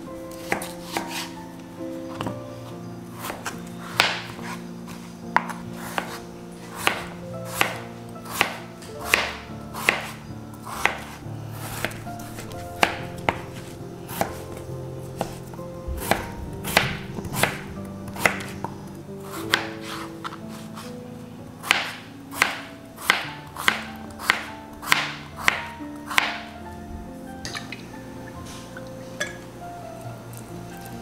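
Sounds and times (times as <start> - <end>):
soft background music: 0.0 - 31.0
knife chopping potatoes on board: 0.4 - 1.3, 3.2 - 14.5, 16.0 - 18.5, 19.4 - 20.9, 21.6 - 26.4.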